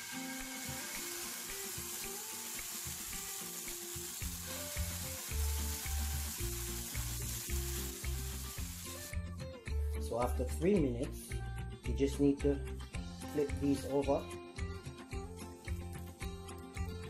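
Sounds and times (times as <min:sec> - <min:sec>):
batter sizzling in a pan: 0:00.0 - 0:09.2.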